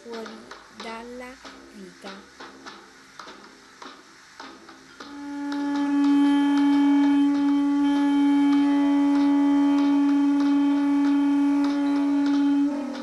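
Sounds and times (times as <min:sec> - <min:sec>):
long held musical note: 0:05.1 - 0:13.0.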